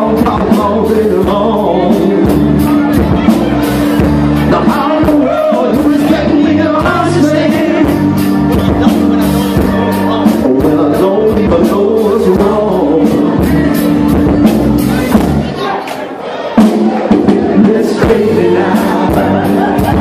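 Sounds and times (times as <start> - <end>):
person singing: 0.0 - 15.8, 16.6 - 20.0
live blues band playing: 0.0 - 20.0.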